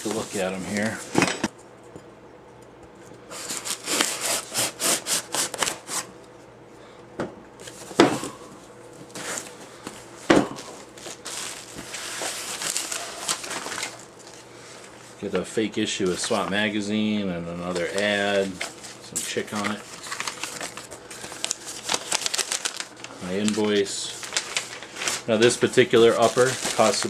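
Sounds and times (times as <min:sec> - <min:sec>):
blade cutting packing tape: 0:03.4 - 0:06.1
cardboard rustling: 0:11.0 - 0:14.4, 0:17.7 - 0:27.0.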